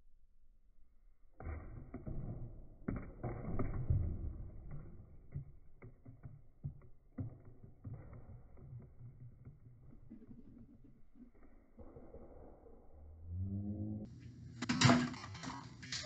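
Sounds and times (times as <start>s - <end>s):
tubes rolling on table: 4.7s - 11.9s.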